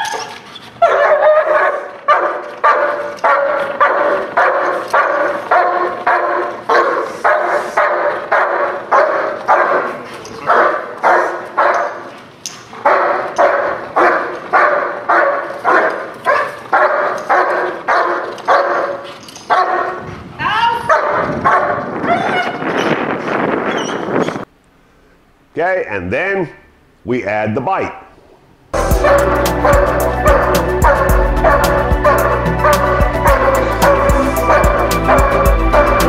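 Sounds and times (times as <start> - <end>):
dog barking: 0.0 - 12.1, 12.8 - 20.1, 20.8 - 21.9, 28.8 - 36.0.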